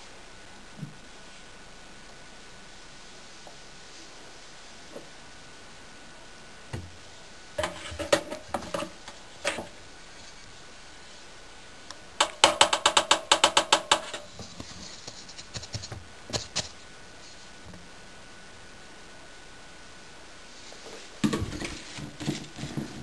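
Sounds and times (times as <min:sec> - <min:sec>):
knocks on washing machine drum: 0:12.2 - 0:14.2.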